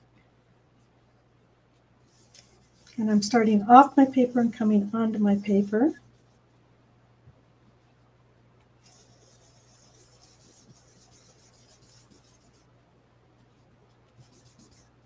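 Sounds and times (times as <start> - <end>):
brush bristles rubbing on card: 1.7 - 6.5, 8.8 - 12.7, 13.4 - 15.0.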